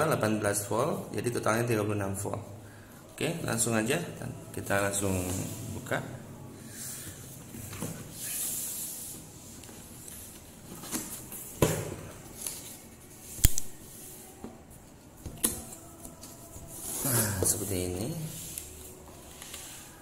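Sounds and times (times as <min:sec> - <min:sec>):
sharp knocks on box: 0:11.6 - 0:12.1.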